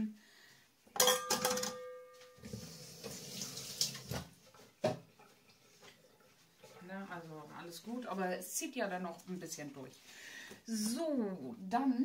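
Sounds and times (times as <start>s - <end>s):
glass bowl knocking metal bowl: 1.0s - 2.5s
metal bowl ringing: 1.0s - 2.5s.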